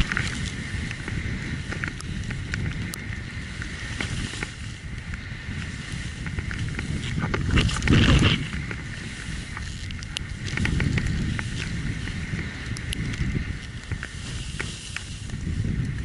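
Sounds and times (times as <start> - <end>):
wind buffeting microphone: 0.0 - 16.0
clothing and gear rustles: 3.5 - 4.8, 5.6 - 15.7.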